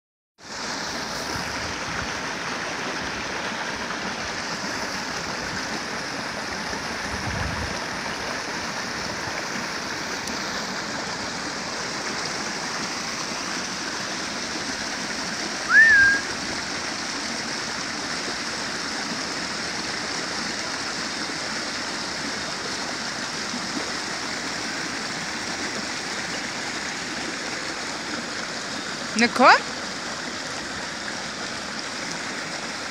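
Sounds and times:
water rushing over waterfall: 0:00.4 - 0:32.9
high chirp: 0:15.7 - 0:16.3.

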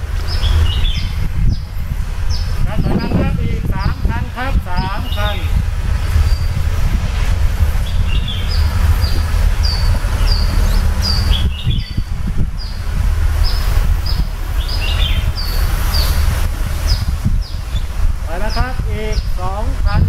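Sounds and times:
birds chirping: 0:00.0 - 0:20.0
steady low rumble: 0:00.0 - 0:20.0.

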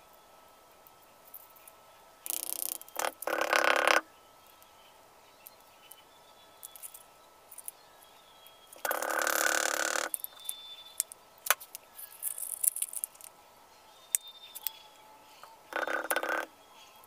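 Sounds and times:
frog croaking: 0:02.3 - 0:04.0, 0:08.9 - 0:10.2, 0:15.7 - 0:16.5.

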